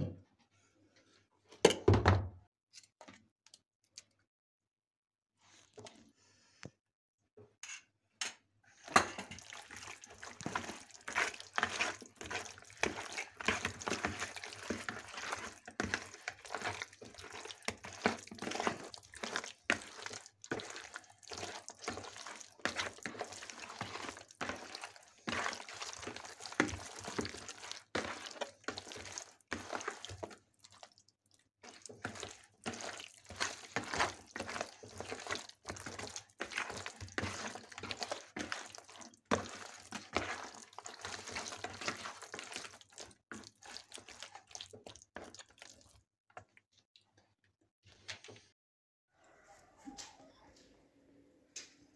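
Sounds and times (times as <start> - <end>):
wet squishing by hand: 9.2 - 47.4.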